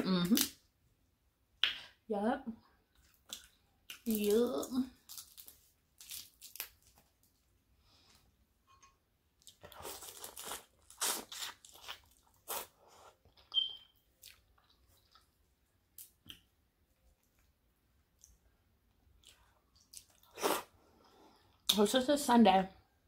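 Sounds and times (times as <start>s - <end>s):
person chewing and crunching: 9.4s - 16.4s.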